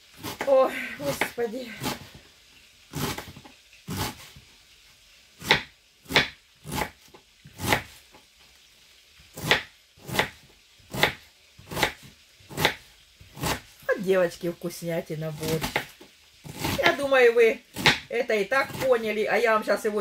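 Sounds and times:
knife chopping on cutting board: 0:05.4 - 0:08.0, 0:09.4 - 0:13.6, 0:15.4 - 0:17.0, 0:17.8 - 0:18.9.

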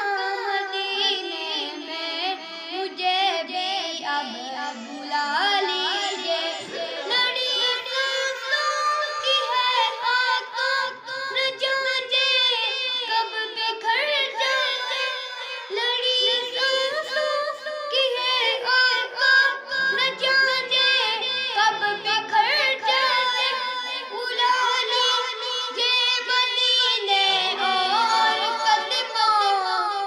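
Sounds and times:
boy singing solo: 0:00.0 - 0:30.0.

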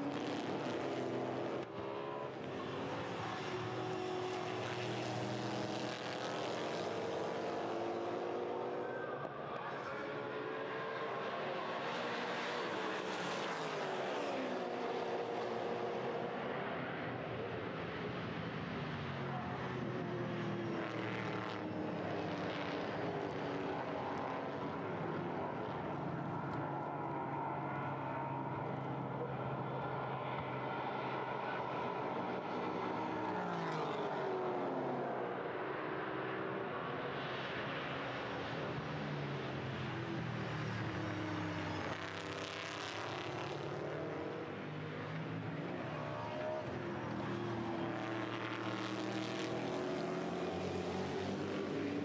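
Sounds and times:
race car engines: 0:00.0 - 0:52.0.

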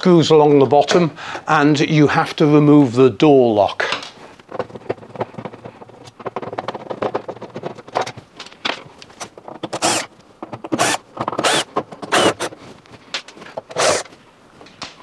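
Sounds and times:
drill clicks and rattles: 0:09.2 - 0:12.6, 0:13.6 - 0:14.1
drill whirring: 0:09.7 - 0:10.1, 0:10.7 - 0:12.5, 0:13.7 - 0:14.1.

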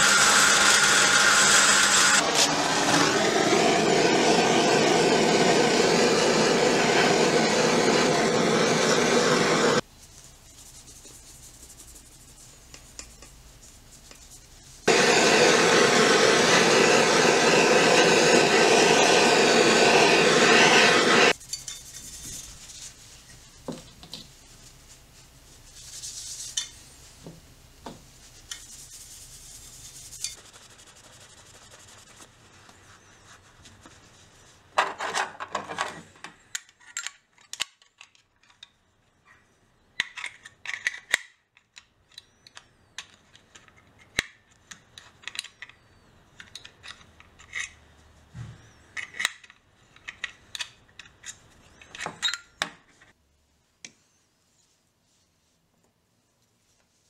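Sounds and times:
gas torch hissing: 0:00.0 - 0:09.8, 0:14.8 - 0:21.4
cloth rubbing over steel: 0:08.6 - 0:23.6, 0:24.3 - 0:27.2, 0:28.1 - 0:34.7.

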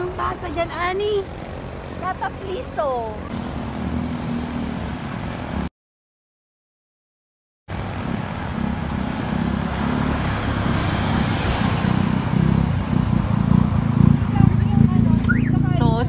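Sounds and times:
car passing: 0:07.7 - 0:16.0.

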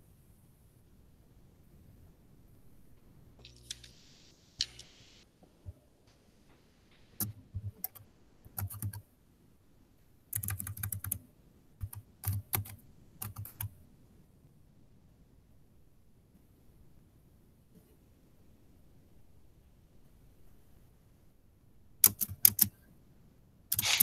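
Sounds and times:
keyboard key clicks: 0:22.0 - 0:22.7.

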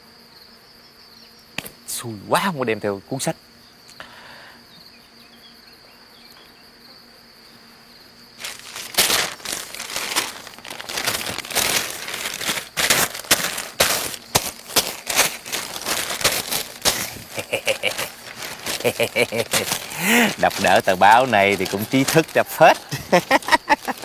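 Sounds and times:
newspaper rustling and crinkling: 0:08.4 - 0:24.0.

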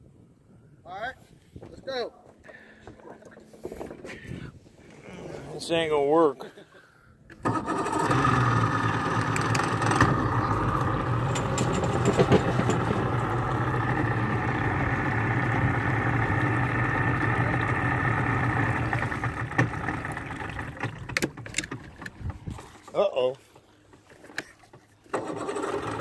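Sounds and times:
outboard motor running: 0:07.4 - 0:26.0.

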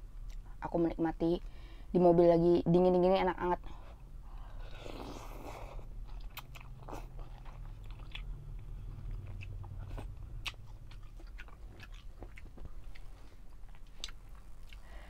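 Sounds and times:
low steady hum: 0:00.0 - 0:15.0
person chewing noodles: 0:04.3 - 0:15.0.

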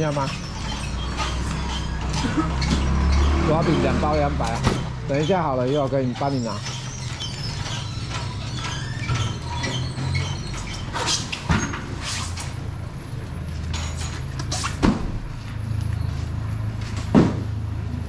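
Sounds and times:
foam boxes knocking and thudding: 0:17.0 - 0:17.6.

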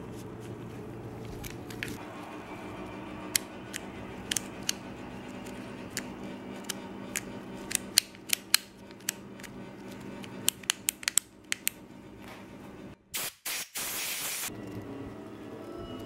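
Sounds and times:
aerosol spray hissing: 0:13.2 - 0:14.5.

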